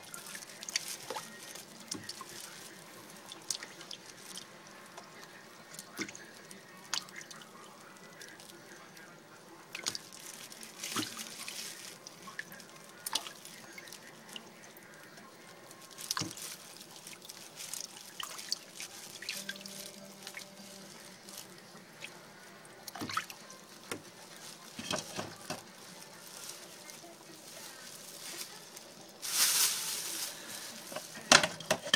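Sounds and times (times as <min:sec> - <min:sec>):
water splashing and dripping in tub: 0:00.0 - 0:08.6, 0:09.7 - 0:15.2, 0:15.9 - 0:25.7.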